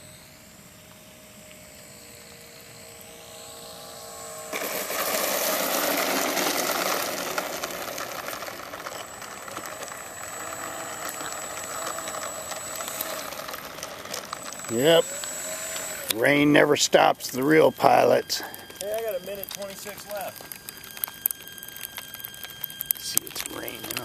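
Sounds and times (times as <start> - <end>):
electric model plane motor whining: 0.0 - 24.0.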